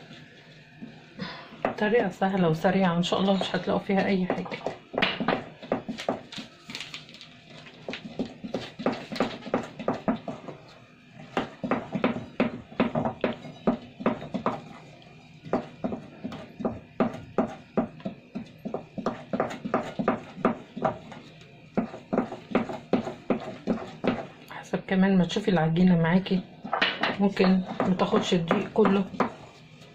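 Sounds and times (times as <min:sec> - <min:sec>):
spoon scraping mixing bowl: 0:26.6 - 0:29.9.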